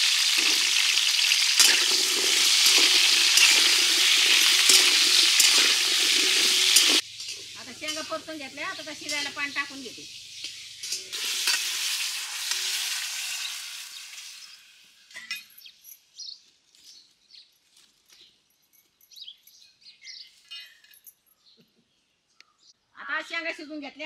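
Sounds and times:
water hitting hot oil sizzling: 0.0s - 15.2s
faint bird chirps: 19.0s - 23.0s.

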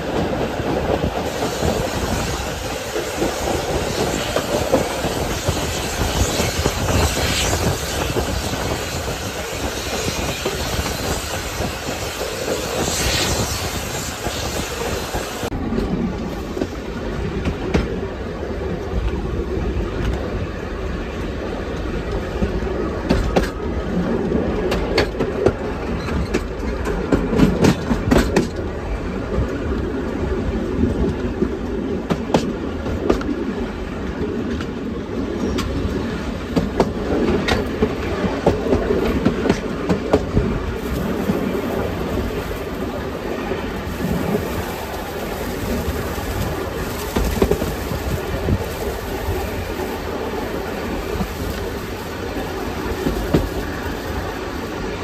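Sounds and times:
steam hiss: 0.0s - 15.5s, 35.5s - 55.0s
train rumbling: 0.0s - 55.0s.

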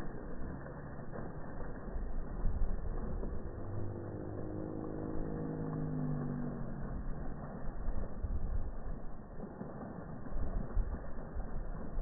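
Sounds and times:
water fountain splashing: 0.0s - 12.0s
vehicle engine passing by: 3.0s - 8.1s.

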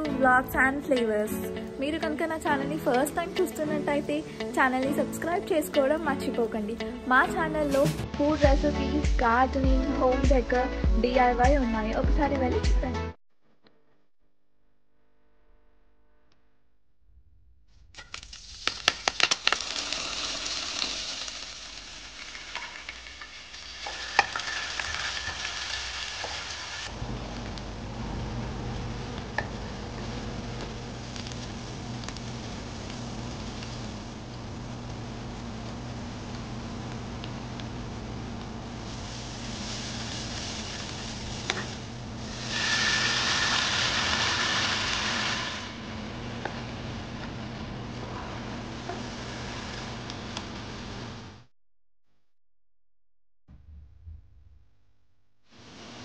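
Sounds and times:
oil sizzling in frying pan: 18.0s - 51.4s.

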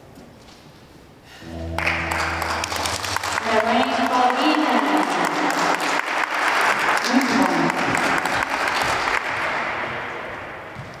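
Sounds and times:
audience applauding: 1.6s - 9.8s.

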